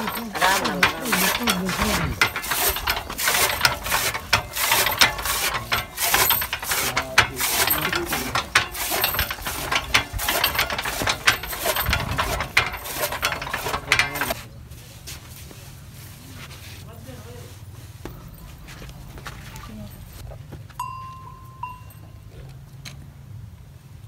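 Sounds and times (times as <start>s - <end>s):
chaff cutter clattering: 0.0s - 14.4s.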